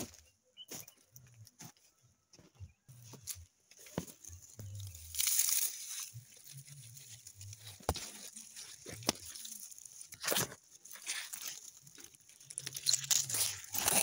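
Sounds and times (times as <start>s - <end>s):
dry straw and leaves rustling: 2.9s - 14.0s.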